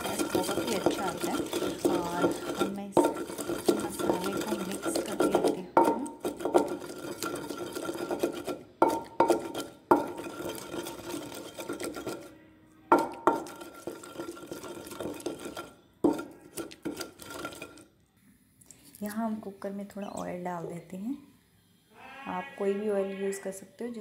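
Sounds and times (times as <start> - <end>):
pestle knocking on clay bowl: 0.0 - 12.3, 12.9 - 17.8
pestle scraping paste in mortar: 0.0 - 12.3, 12.9 - 17.8.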